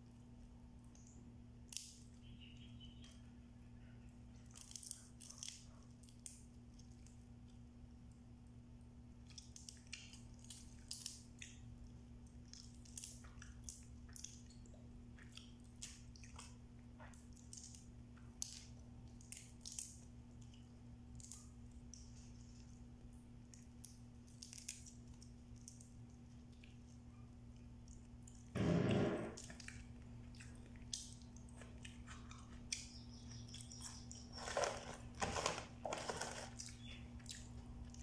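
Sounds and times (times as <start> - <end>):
low electrical hum: 0.0 - 38.0
crab shells cracking: 4.4 - 7.2, 9.3 - 14.6, 15.3 - 22.1, 23.4 - 26.8, 29.4 - 38.0
chewing: 9.2 - 28.5, 29.4 - 38.0.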